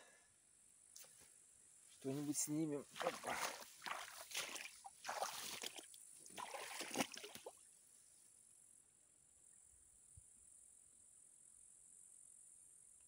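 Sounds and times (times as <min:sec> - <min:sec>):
sloshing in shallow water: 0:02.8 - 0:07.7.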